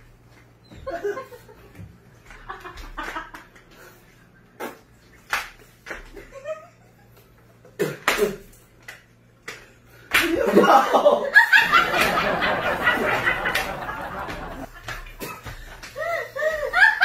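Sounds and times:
women laughing: 0.7s - 1.8s, 6.2s - 7.3s, 10.4s - 17.0s.

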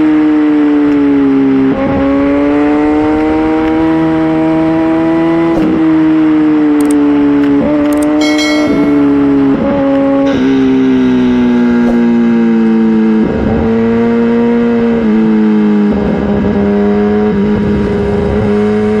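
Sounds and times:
motorcycle engine high-pitched drone: 8.1s - 19.0s.

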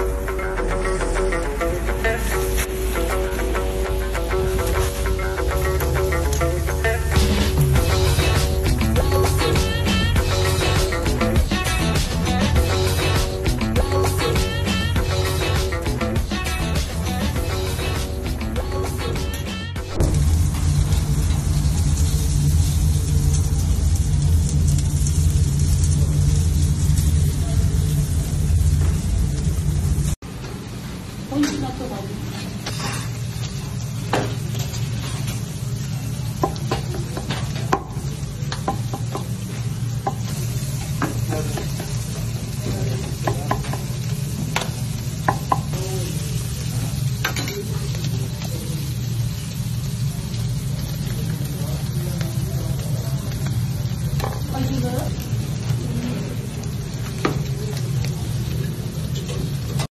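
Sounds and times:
sizzling: 0.0s - 59.9s
meat crackling over charcoal: 19.8s - 30.2s, 32.3s - 59.9s.

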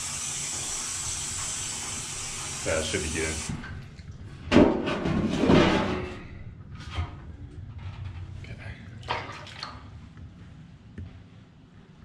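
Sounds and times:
water sloshing in a bucket: 9.0s - 10.0s.

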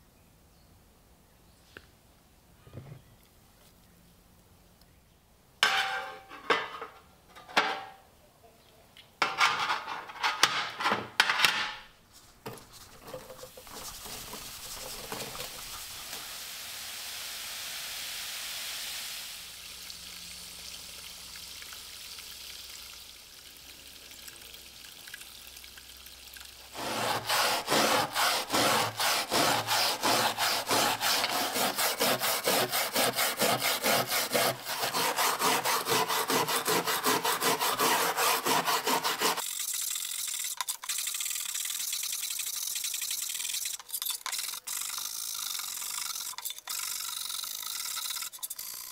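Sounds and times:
baking soda pouring hiss: 12.6s - 27.7s
brush scrubbing metal blade: 12.8s - 15.7s, 26.7s - 39.4s.

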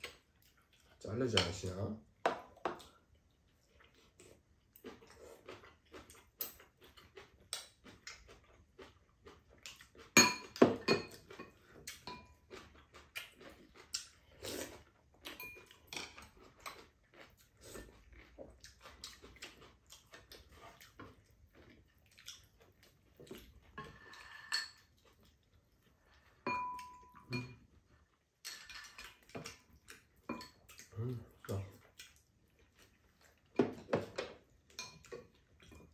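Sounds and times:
utensils clinking on bowls: 10.2s - 12.4s, 15.4s - 16.4s, 23.8s - 24.9s, 26.5s - 27.6s, 28.4s - 29.6s, 30.2s - 30.6s.

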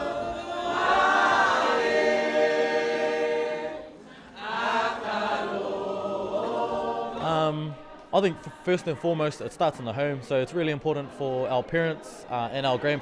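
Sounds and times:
group singing long notes: 0.0s - 9.2s.

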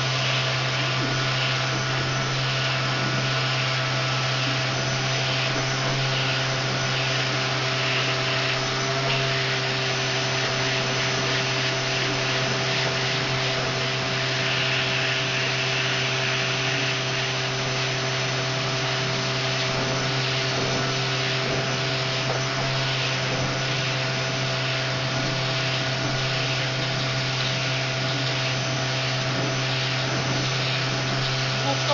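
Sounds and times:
vacuum cleaner running: 0.0s - 31.9s.

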